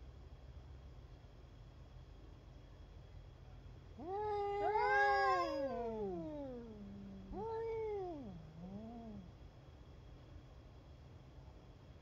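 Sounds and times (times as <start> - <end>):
cats yowling: 4.0 - 9.3.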